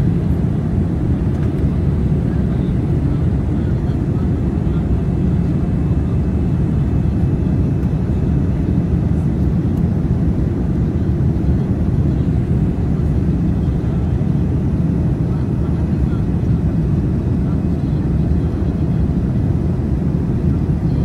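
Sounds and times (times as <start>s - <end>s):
airplane cabin engine rumble: 0.0s - 21.0s.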